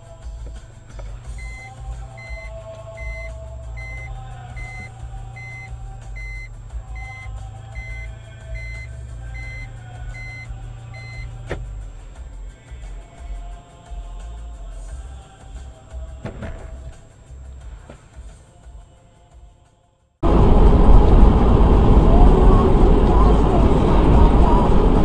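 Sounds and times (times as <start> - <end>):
low vehicle engine hum: 0.0 - 18.5, 20.2 - 25.0
reversing warning beeps: 1.4 - 11.4.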